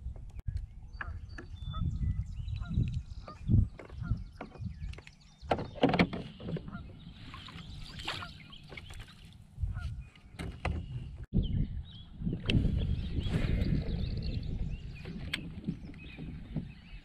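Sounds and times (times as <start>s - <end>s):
wind rumble on microphone: 0.0s - 17.0s
birds calling: 0.7s - 17.0s
water splashing: 5.5s - 9.5s.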